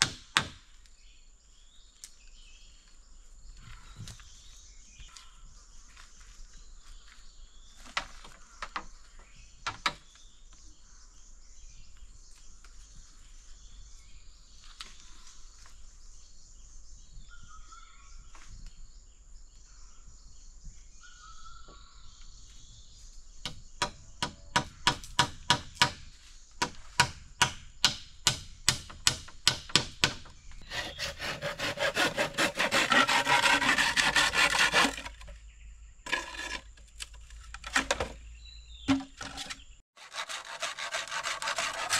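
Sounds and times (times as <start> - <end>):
hammer striking bamboo poles: 0.0 - 0.6, 23.8 - 26.0, 26.6 - 35.2, 38.9 - 39.3
sawing on wood: 30.6 - 35.3, 36.1 - 36.7, 40.0 - 41.9.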